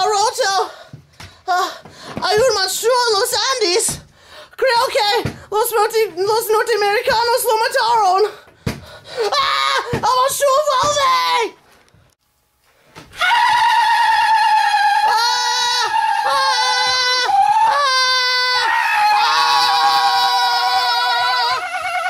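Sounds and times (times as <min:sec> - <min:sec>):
person screaming: 0:09.2 - 0:11.5, 0:13.2 - 0:22.0.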